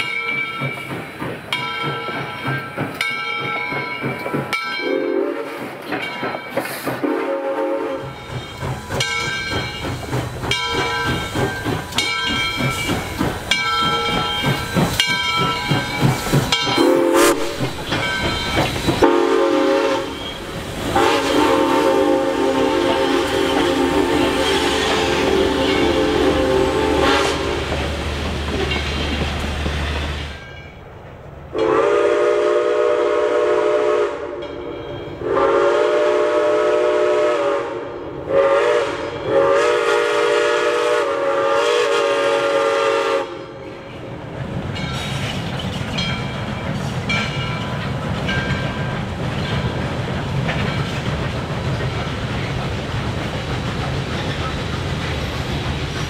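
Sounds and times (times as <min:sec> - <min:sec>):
locomotive passing close: 0:00.0 - 0:34.0, 0:38.1 - 0:56.0
train wheels clacking on rails: 0:00.0 - 0:37.6, 0:38.4 - 0:56.0
train coaches rumbling: 0:00.0 - 0:56.0
steam locomotive whistle blasts: 0:04.8 - 0:05.7, 0:07.0 - 0:08.2, 0:16.7 - 0:17.9, 0:19.0 - 0:27.7, 0:31.5 - 0:34.5, 0:35.2 - 0:43.6.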